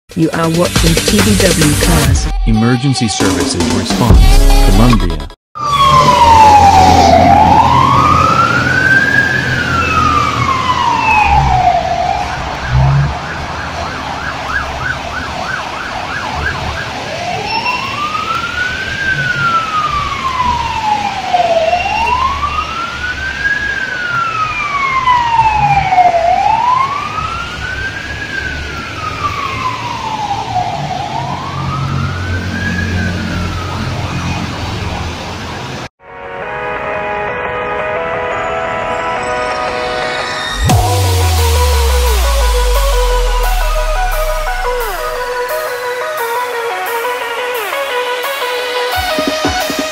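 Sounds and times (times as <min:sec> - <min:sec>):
fire engine siren: 0:01.6 - 0:03.8, 0:05.6 - 0:36.7, 0:37.3 - 0:49.9
traffic rumble: 0:05.8 - 0:35.9.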